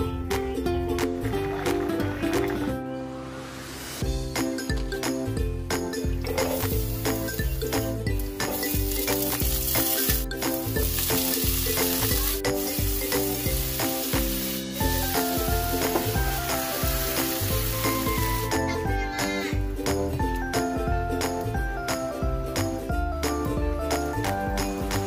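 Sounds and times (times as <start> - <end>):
background music with steady beat: 4.0 - 25.0
food sizzling in hot oil: 6.4 - 18.7.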